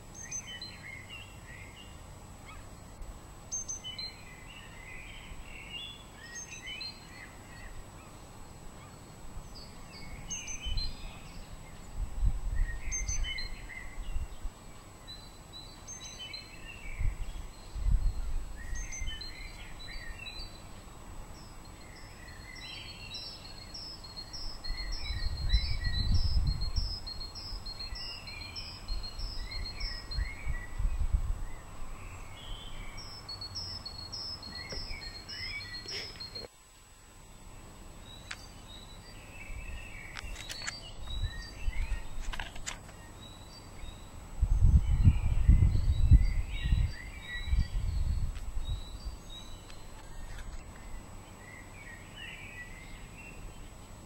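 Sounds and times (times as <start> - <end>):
songbirds singing: 0.0 - 54.0
wind rumble on microphone: 9.2 - 14.7, 16.6 - 20.5, 24.2 - 33.8, 39.4 - 42.7, 43.9 - 51.0.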